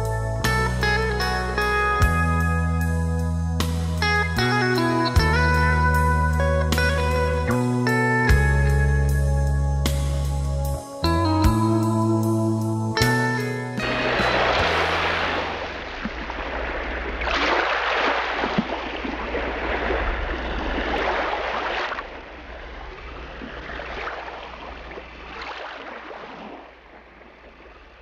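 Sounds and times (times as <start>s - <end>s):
rushing water surging: 13.8s - 27.7s
steady low hum: 22.0s - 25.5s.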